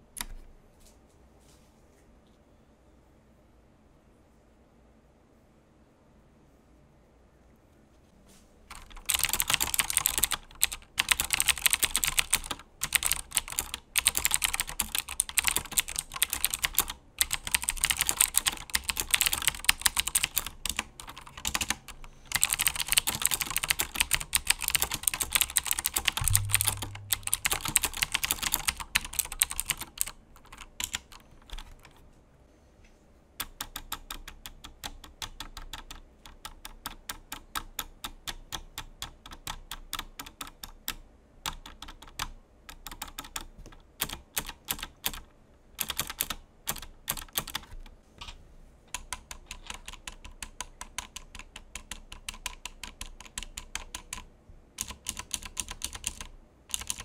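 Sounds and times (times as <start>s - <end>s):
fast typing on mechanical keyboard: 8.7s - 32.0s, 33.4s - 47.9s, 48.9s - 57.0s
short low thump: 26.2s - 27.4s.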